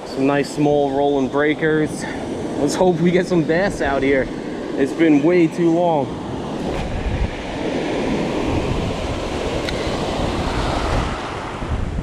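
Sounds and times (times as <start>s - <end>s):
ocean surf breaking: 0.0s - 12.0s
wind buffeting microphone: 0.0s - 12.0s
small click: 9.6s - 9.9s.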